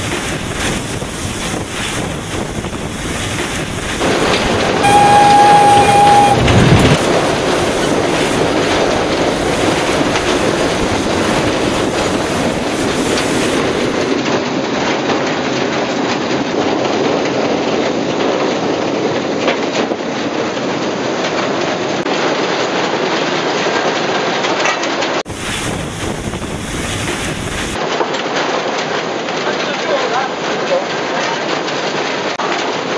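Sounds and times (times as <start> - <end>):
steam locomotive rumble: 0.0 - 14.2, 25.3 - 27.9.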